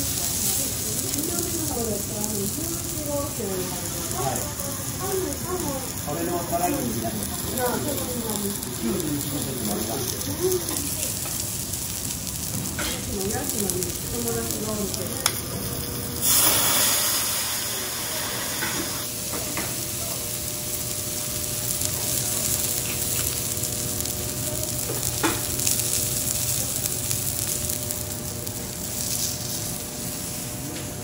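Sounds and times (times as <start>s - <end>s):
meat sizzling on a griddle: 0.0s - 31.0s.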